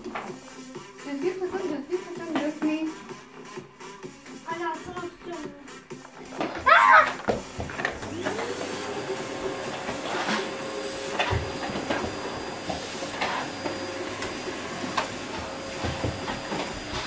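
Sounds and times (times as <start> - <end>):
vacuum cleaner motor whine: 7.4 - 17.0.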